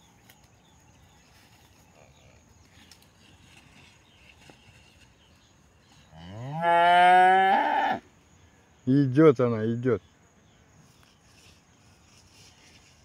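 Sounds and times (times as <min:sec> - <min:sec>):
cow mooing: 0:06.2 - 0:08.0.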